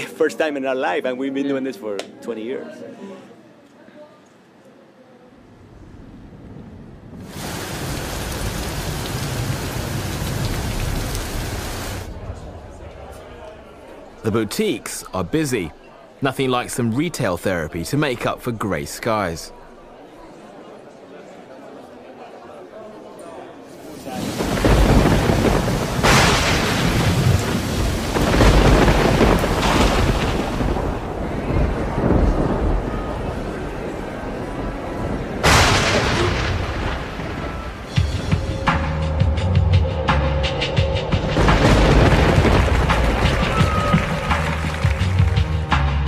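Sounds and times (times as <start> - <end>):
heavy rain pouring: 5.8 - 13.1, 23.7 - 38.7, 41.2 - 45.4.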